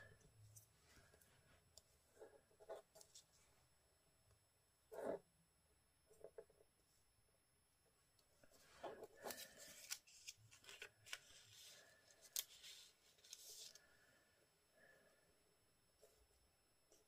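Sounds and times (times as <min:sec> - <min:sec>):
paper rustle: 0:09.2 - 0:13.8.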